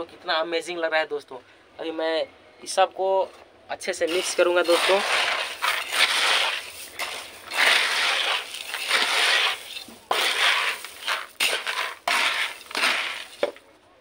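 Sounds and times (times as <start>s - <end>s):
chickpeas rattling in basin: 4.1s - 13.6s.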